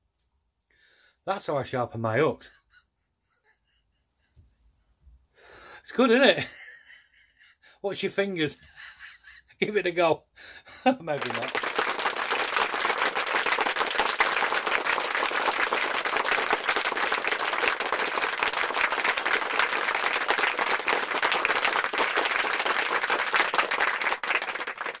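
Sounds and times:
crowd applause: 11.1s - 25.0s.

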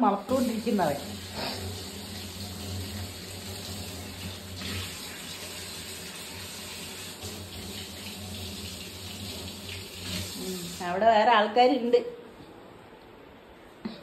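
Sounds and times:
running water: 0.0s - 11.1s.

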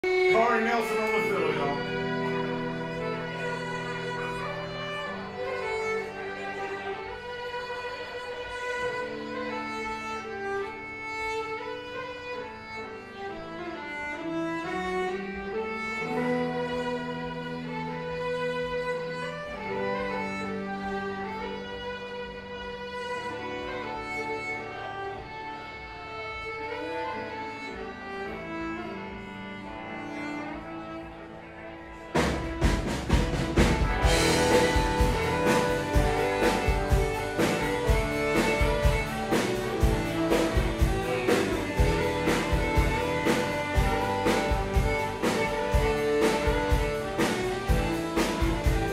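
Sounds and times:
country fiddle melody: 0.0s - 48.9s
sustained bass notes: 32.2s - 48.9s.

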